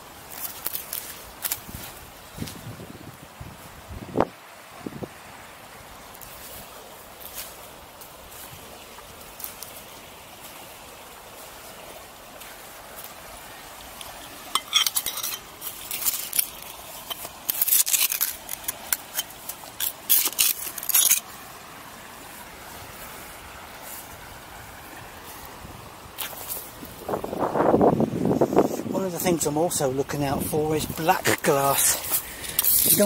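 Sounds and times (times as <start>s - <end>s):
faint steady hiss: 0.0s - 33.0s
glass and pottery shards clinking: 14.5s - 21.2s, 32.4s - 33.0s.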